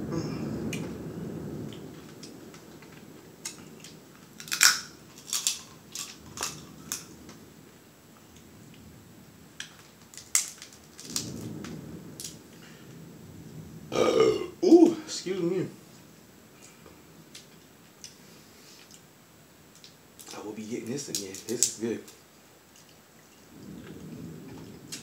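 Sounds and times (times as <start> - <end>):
crab shell cracking and snapping: 2.1 - 7.1, 9.6 - 12.4, 19.7 - 20.4, 21.1 - 22.2.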